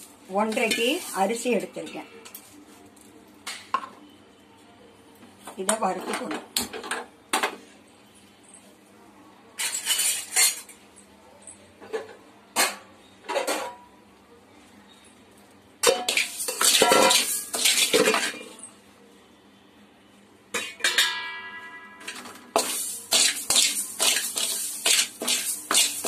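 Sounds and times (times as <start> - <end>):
metal utensils clattering: 9.6 - 10.8, 15.8 - 18.6, 20.6 - 26.0
metal pot ringing: 20.6 - 22.3.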